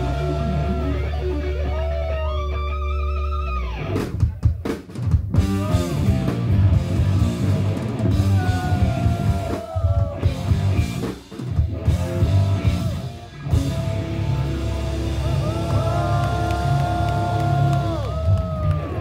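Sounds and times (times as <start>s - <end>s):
electric guitar lead with bends: 0.0s - 4.1s, 11.7s - 17.8s
live rock band playing: 0.0s - 18.4s.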